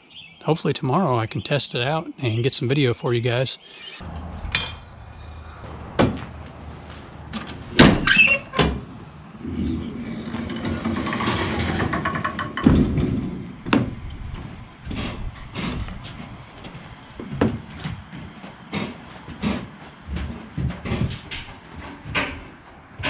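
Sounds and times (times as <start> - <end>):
ramp swinging down: 4.0 - 22.6
ramp landing thump: 7.5 - 8.9, 10.7 - 15.9.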